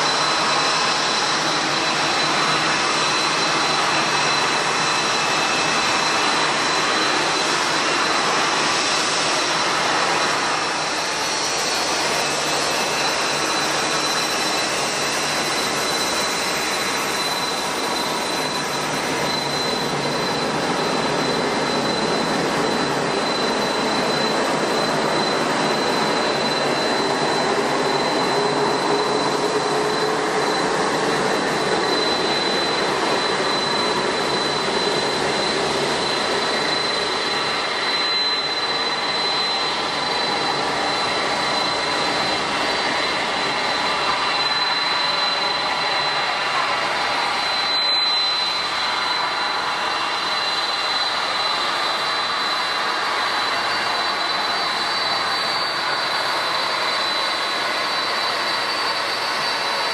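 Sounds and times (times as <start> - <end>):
high steady whine: 0.0 - 59.9
jet engines running: 0.0 - 59.9.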